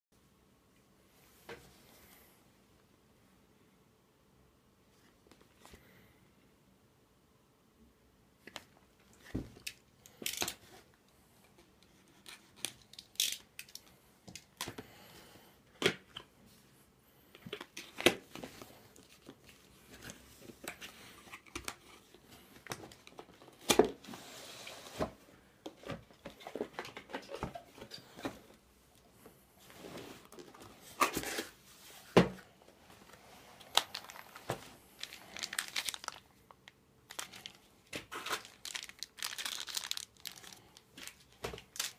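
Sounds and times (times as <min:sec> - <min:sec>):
paper and packaging rustling: 0:32.9 - 0:41.9.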